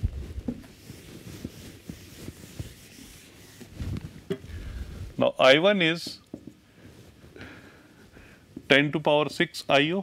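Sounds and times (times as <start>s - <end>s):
whiteboard being wiped: 0.1s - 4.4s.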